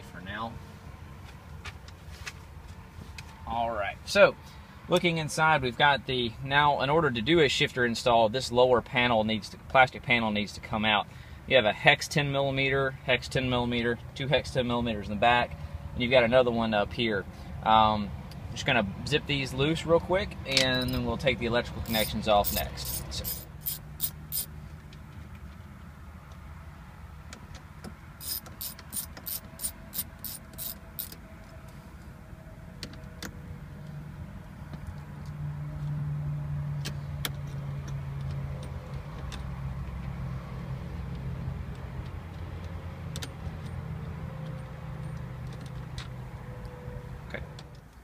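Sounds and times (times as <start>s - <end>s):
socket ratchet clicking: 21.8s - 24.5s, 28.2s - 31.2s.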